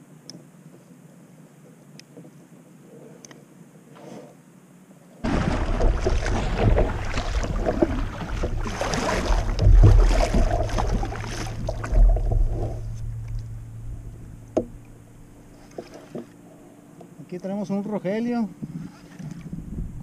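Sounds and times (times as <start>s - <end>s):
wind buffeting microphone: 5.2s - 15.5s, 18.6s - 20.0s
water splashing along kayak hull: 5.2s - 16.4s.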